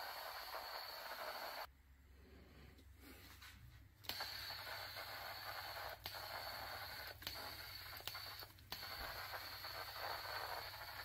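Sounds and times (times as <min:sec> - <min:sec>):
powder coating gun hissing: 0:00.0 - 0:01.7, 0:04.1 - 0:11.0
faint high whine: 0:00.0 - 0:02.4, 0:04.0 - 0:11.0.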